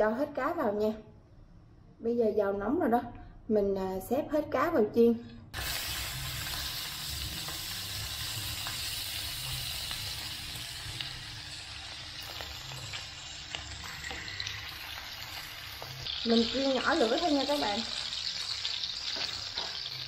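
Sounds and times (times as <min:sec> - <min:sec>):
fish sizzling in hot oil: 0:05.6 - 0:20.0.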